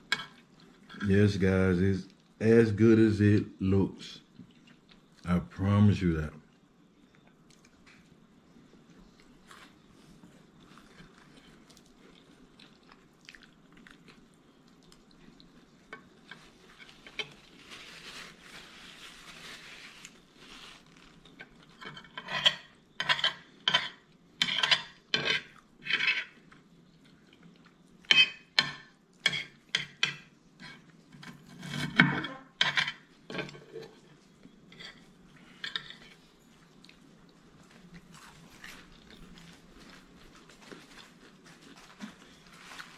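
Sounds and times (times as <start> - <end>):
cutlery scraping a ceramic plate: 21.7 - 26.4, 28.1 - 34.0, 34.7 - 36.2.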